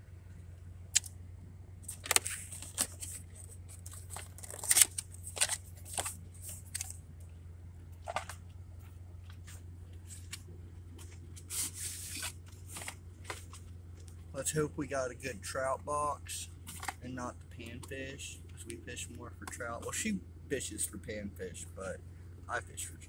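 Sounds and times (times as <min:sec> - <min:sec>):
cardboard scraping and rustling: 0:01.8 - 0:07.0, 0:11.0 - 0:13.7.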